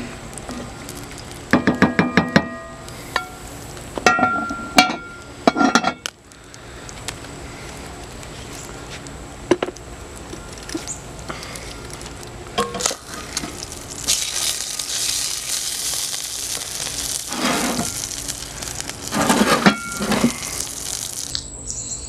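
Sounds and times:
metal lid clanking and scraping: 12.6s - 12.9s, 19.1s - 20.4s.

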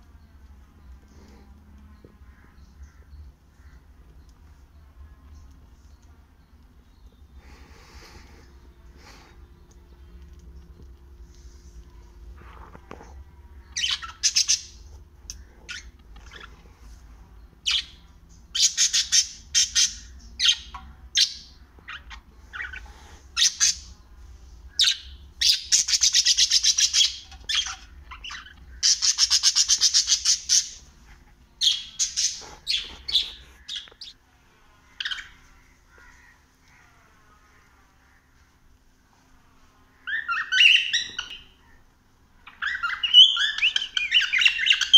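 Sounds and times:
parrots chirping and squawking: 13.8s - 16.7s, 17.6s - 23.9s, 24.8s - 34.2s, 34.9s - 36.9s, 40.0s - 41.8s, 42.4s - 44.9s.

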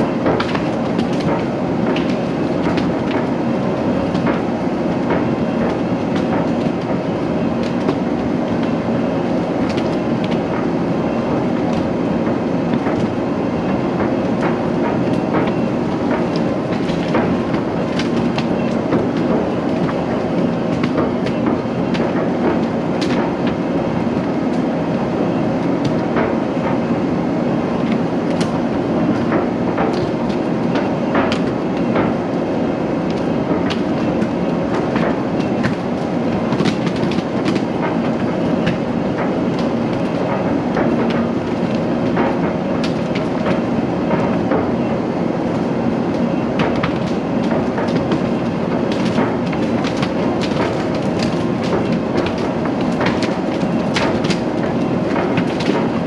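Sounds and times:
machine rattling clicks and clanks: 33.1s - 56.0s.

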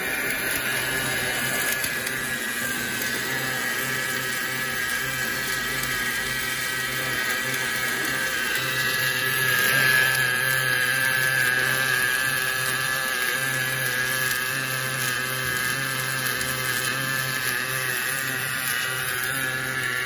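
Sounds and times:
low machine hum: 0.0s - 13.4s
welding arc hissing and crackling: 0.0s - 20.0s.

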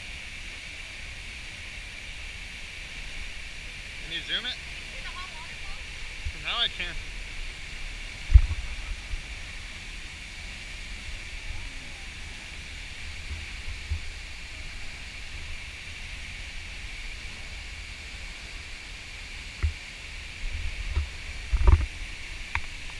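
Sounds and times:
waterfall roaring: 0.0s - 22.9s
wind buffeting microphone: 7.0s - 9.6s.

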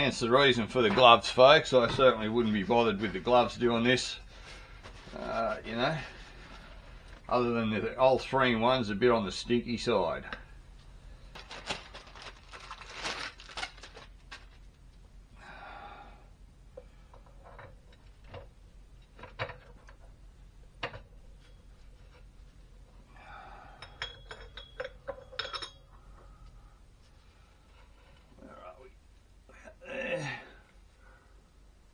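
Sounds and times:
metallic clinks and knocks: 23.8s - 26.2s.

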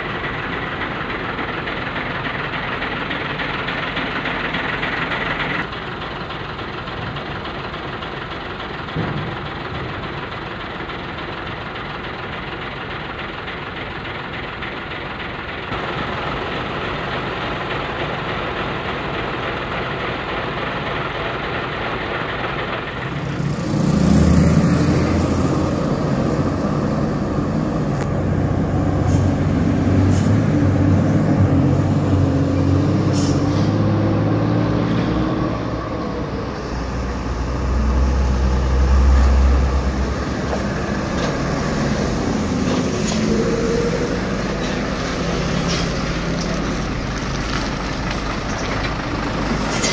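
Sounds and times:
diesel trucks passing: 0.0s - 49.9s.

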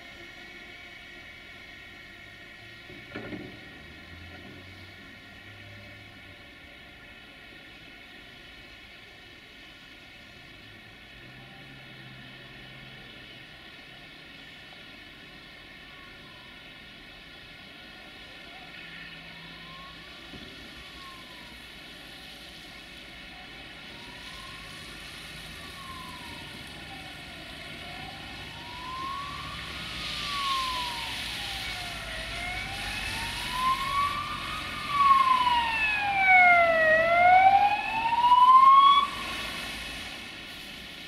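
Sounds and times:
emergency siren wailing: 15.3s - 41.0s.

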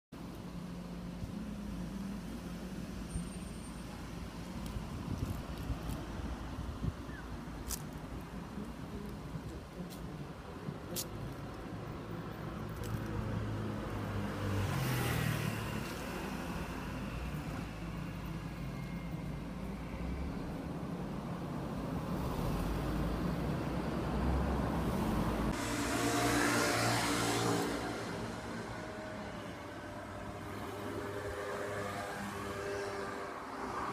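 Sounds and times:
road traffic rumble: 0.2s - 33.9s
vehicle passing: 22.2s - 33.9s.

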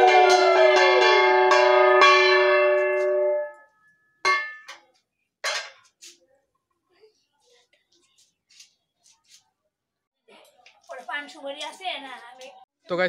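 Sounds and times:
conch shell blown: 0.0s - 3.5s
small hand bell ringing: 0.0s - 3.7s.

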